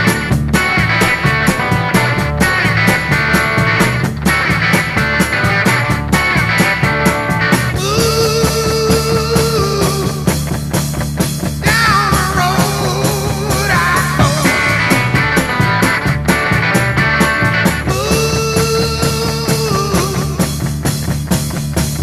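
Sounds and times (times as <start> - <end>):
melodic lead line: 0.0 - 9.2, 11.9 - 18.9
drum beat: 0.0 - 22.0.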